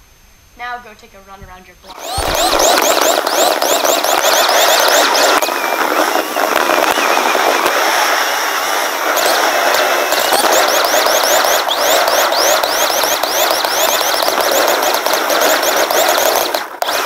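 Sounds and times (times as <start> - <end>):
skateboard wheels rolling on pavement: 4.3 - 13.4.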